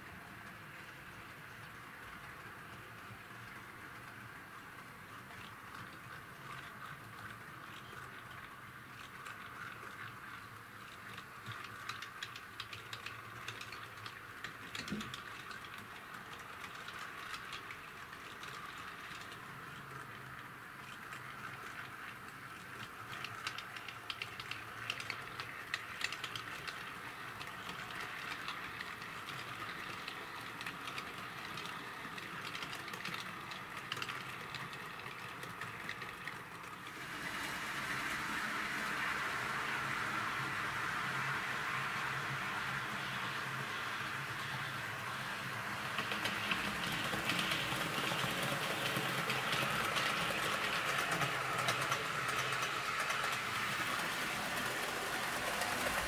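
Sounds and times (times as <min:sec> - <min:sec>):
wheels clicking over rail joints: 0:00.0 - 0:37.4, 0:42.4 - 0:56.0
model train rolling whirr: 0:00.0 - 0:56.0.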